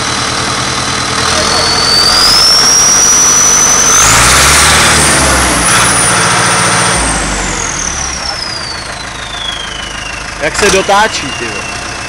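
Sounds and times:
diesel tractor engine revving: 0.0s - 12.0s
turbo whistle: 1.2s - 6.2s, 7.7s - 12.0s.

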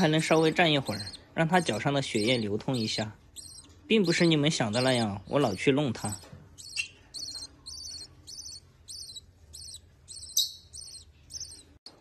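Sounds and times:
bird chick chirping: 0.0s - 12.0s.

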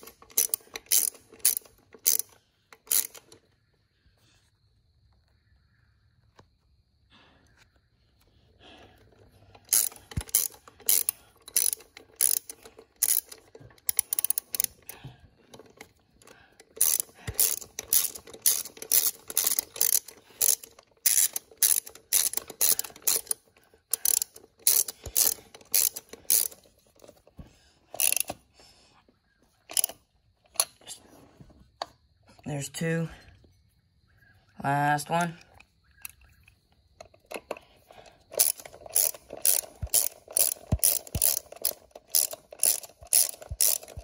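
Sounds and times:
socket ratchet clicking: 0.0s - 3.4s, 9.6s - 27.2s, 27.9s - 28.4s, 29.7s - 30.8s, 38.3s - 44.0s.

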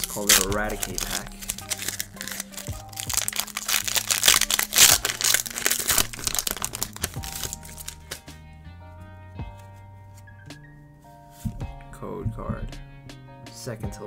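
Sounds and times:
foil wrapper crinkling: 0.0s - 8.2s
lofi background music: 0.0s - 14.0s.

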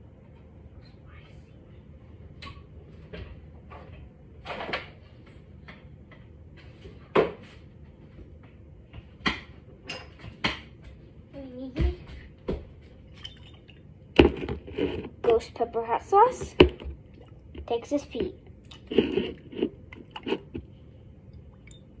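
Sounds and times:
bottles being handled: 16.4s - 20.7s.

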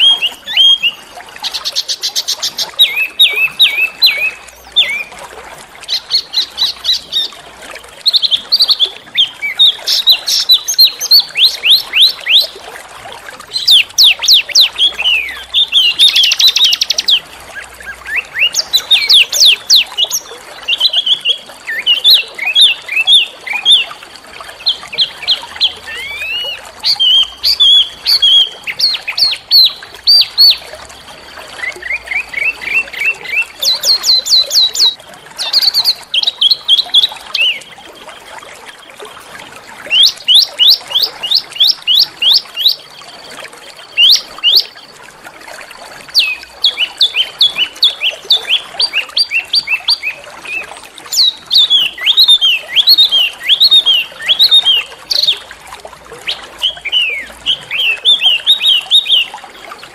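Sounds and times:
songbird singing: 0.0s - 12.6s, 13.4s - 44.9s, 46.0s - 55.6s, 56.2s - 59.9s.

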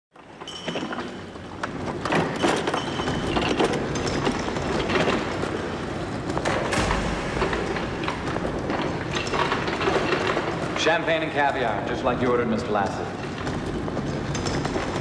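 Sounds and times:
cart rattling on castors: 0.2s - 6.8s, 9.1s - 15.0s
low rumble: 6.4s - 10.7s.

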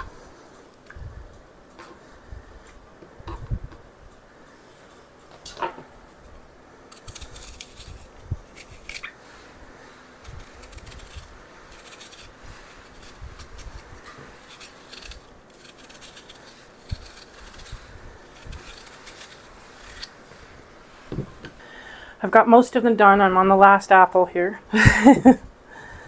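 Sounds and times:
knife scraping apple skin: 6.9s - 20.3s.

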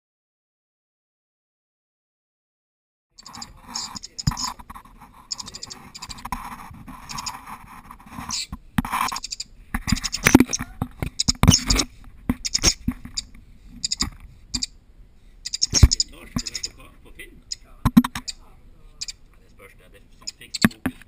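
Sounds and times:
stoat chattering with high squeaks: 3.2s - 6.3s, 7.0s - 7.4s, 8.2s - 14.7s, 15.5s - 16.8s
sharp clicks and knocks: 3.2s - 6.4s, 8.2s - 14.7s, 15.5s - 16.7s, 17.8s - 18.4s, 20.2s - 21.0s.

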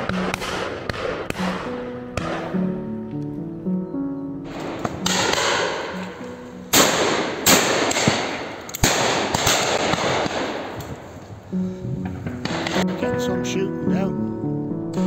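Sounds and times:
shotgun shots with echo: 0.0s - 2.6s, 4.5s - 6.0s, 6.7s - 11.1s, 12.4s - 13.0s.

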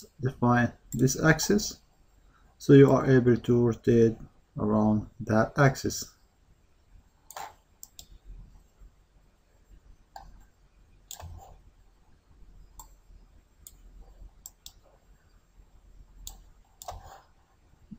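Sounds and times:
faint low hum: 0.0s - 17.9s
computer mouse clicks: 7.3s - 8.2s, 11.0s - 11.6s, 12.7s - 13.0s, 13.6s - 14.8s, 16.2s - 17.3s.

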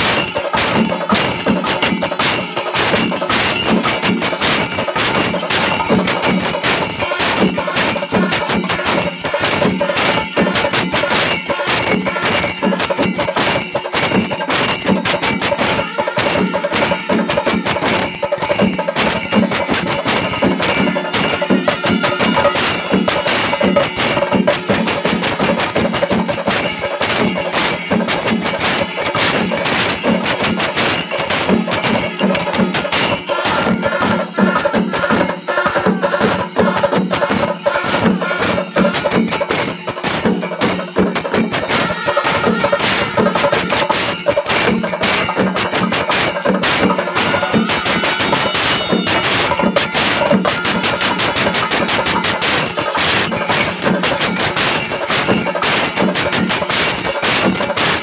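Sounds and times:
drums beating: 0.0s - 58.0s
hand cymbals: 0.0s - 58.0s
horns sounding: 47.1s - 49.6s.

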